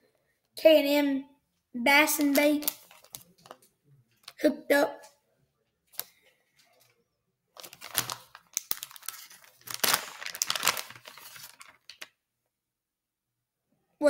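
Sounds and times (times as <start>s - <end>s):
plastic packaging crinkling and tearing: 2.2s - 3.6s, 4.2s - 4.4s, 7.6s - 12.2s.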